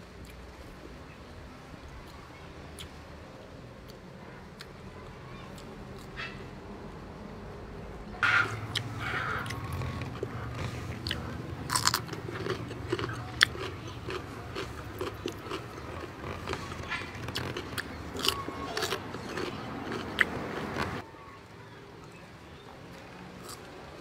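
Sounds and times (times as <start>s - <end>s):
crunchy bites and chewing: 8.2s - 21.0s, 23.4s - 23.7s.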